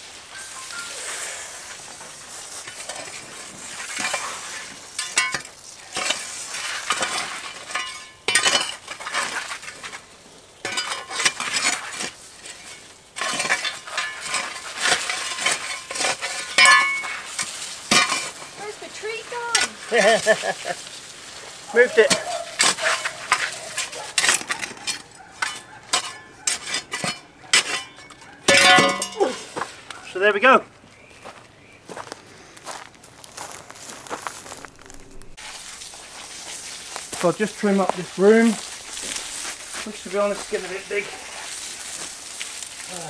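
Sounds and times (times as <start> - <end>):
spade scraping stony soil: 0.1 - 29.9, 33.7 - 43.0
spade blade knocks: 27.0 - 29.3.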